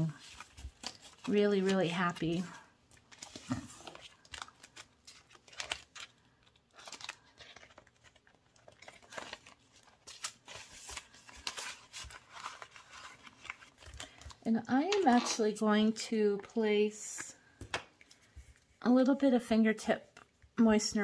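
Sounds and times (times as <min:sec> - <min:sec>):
paper rustling and crinkling: 0:00.0 - 0:15.4.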